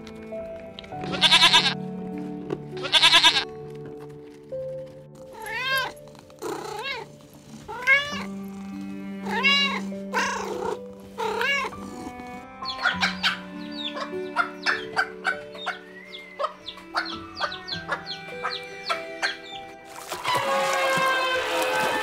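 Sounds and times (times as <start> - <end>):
soft background music: 0.0 - 22.0
cat meowing: 1.1 - 1.8, 2.8 - 3.4, 5.3 - 7.1, 7.7 - 8.3, 9.2 - 11.8
short bleat: 1.1 - 1.8, 2.8 - 3.4.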